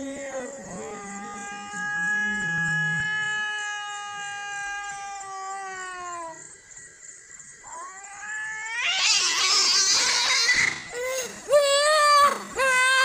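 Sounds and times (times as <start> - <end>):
cats yowling: 0.6 - 6.5, 7.6 - 13.0
cat screech: 1.0 - 6.4, 7.7 - 10.9.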